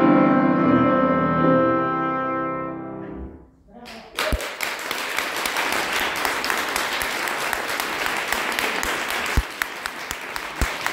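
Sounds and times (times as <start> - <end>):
audience applauding: 3.8 - 10.9.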